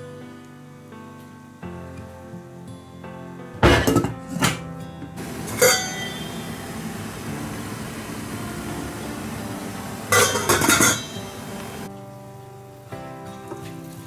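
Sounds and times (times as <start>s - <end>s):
soft background music: 0.0s - 14.0s
kitchenware clinking: 3.6s - 11.9s.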